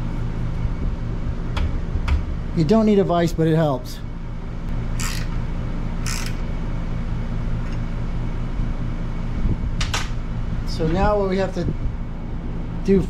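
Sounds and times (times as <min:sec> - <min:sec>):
pulsing mechanical hum: 0:00.0 - 0:13.0
short rasping noises: 0:05.0 - 0:05.4, 0:06.0 - 0:06.4.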